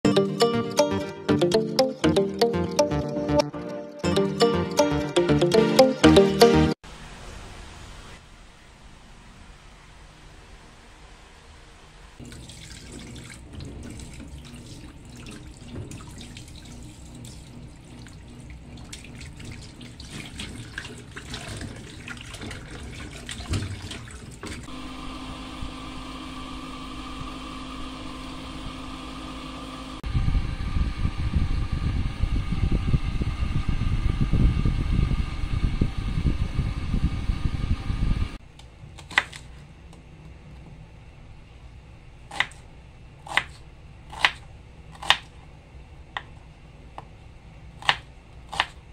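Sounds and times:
tap water running into sink: 12.2 - 24.7.

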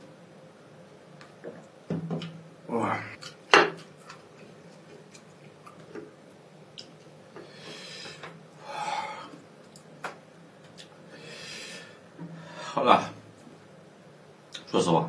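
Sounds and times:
breathy exhales: 7.4 - 9.4, 11.1 - 12.8.

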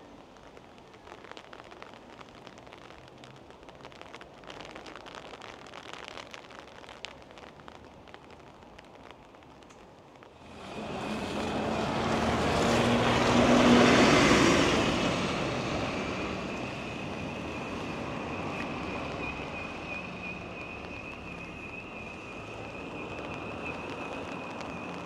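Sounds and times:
rain: 0.0 - 25.0
tyres hissing on wet road: 10.3 - 25.0
bus driving past: 10.4 - 25.0.

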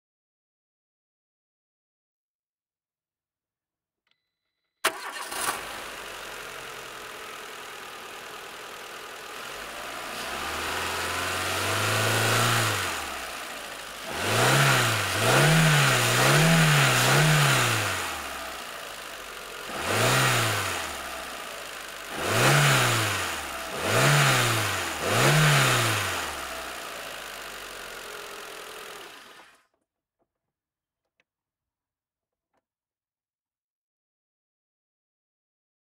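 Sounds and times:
car engine starting and revving: 4.8 - 29.6.

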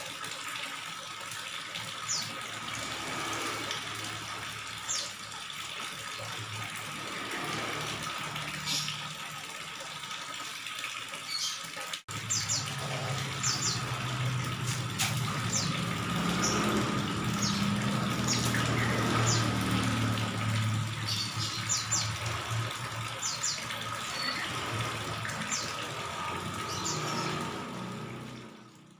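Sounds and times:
hose water splashing into tank: 0.0 - 28.9.

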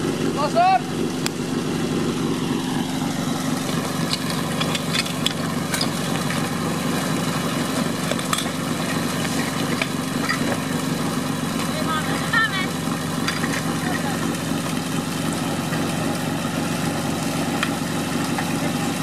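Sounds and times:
pump engine idling: 0.0 - 19.0
metallic knocks of hose couplings: 4.0 - 6.4.

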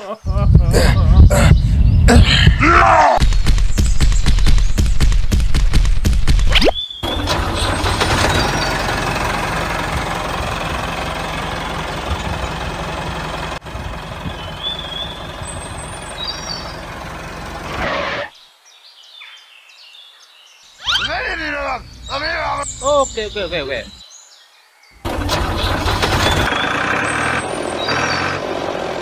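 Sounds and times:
tractor engine running: 7.0 - 17.9, 25.0 - 29.0.

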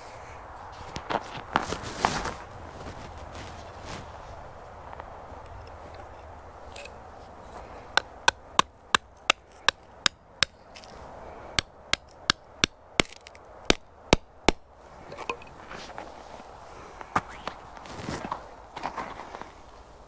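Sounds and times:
hammer striking tent stake: 7.9 - 10.9, 11.6 - 14.7.

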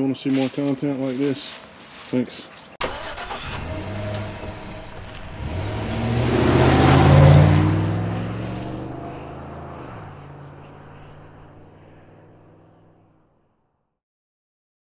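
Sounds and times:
rushing whoosh: 3.4 - 12.0.

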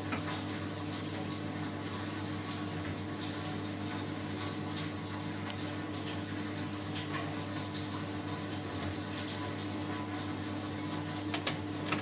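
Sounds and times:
gas boiler humming and rushing: 0.0 - 12.0.

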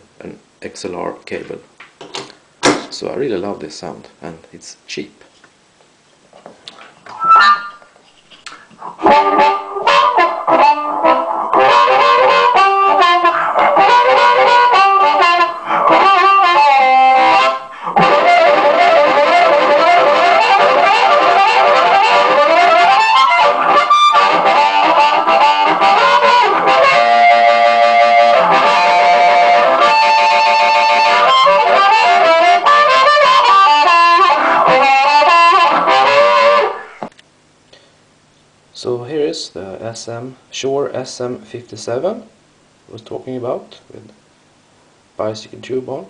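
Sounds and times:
amplified blues harmonica: 7.2 - 37.0.

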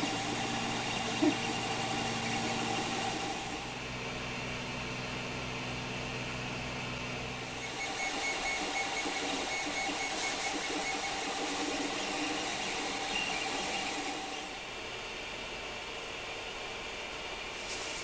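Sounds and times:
stepper motors whirring: 0.0 - 3.9, 7.4 - 14.6
steady hum: 0.0 - 17.8.

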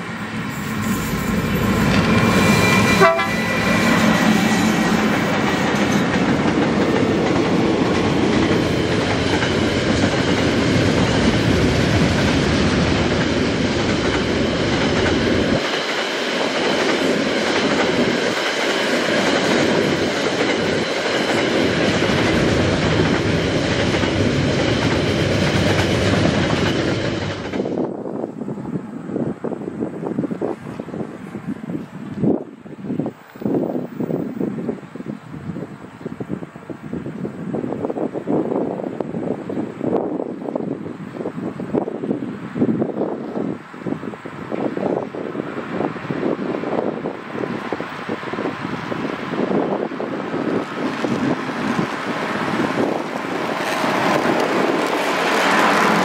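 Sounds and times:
freight train rumbling on rails: 0.0 - 56.0
train horn: 0.5 - 5.0.

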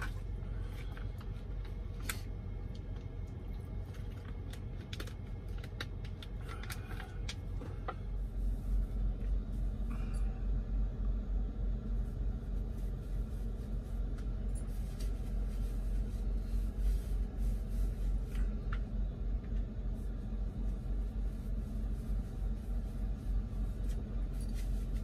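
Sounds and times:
diesel engine rumble: 0.0 - 25.0
clothing rustling: 12.0 - 18.8, 19.9 - 25.0.

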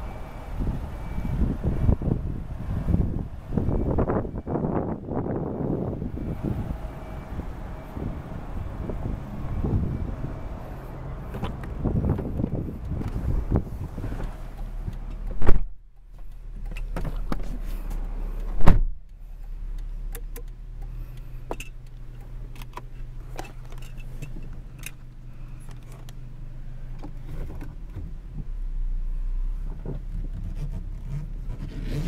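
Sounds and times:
car engine idling: 0.0 - 31.5
loud thumps: 18.5 - 19.1.

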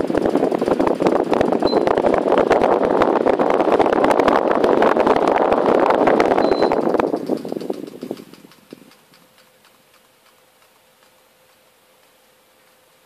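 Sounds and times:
electric fan running: 0.0 - 13.0
short high beep: 1.6 - 2.0, 6.4 - 6.8.

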